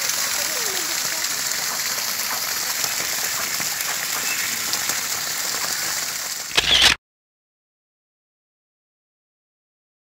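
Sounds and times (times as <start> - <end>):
water splashing on pond: 0.0 - 7.0.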